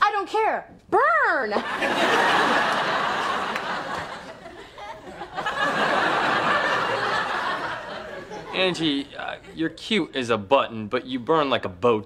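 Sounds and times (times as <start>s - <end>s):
studio audience laughing: 1.6s - 9.8s.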